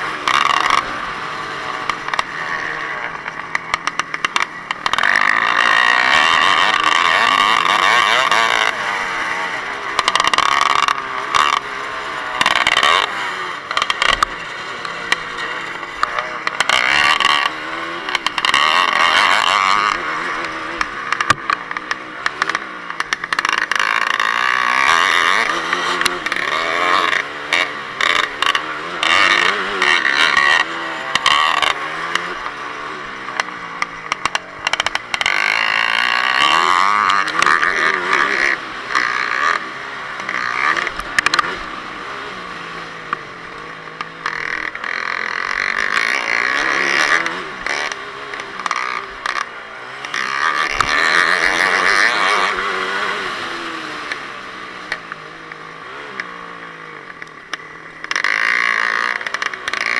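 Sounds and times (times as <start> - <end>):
dirt bike engine revving: 0.0 - 59.9
sharp knocks and clatter: 1.7 - 8.7, 13.7 - 32.6, 33.3 - 39.6.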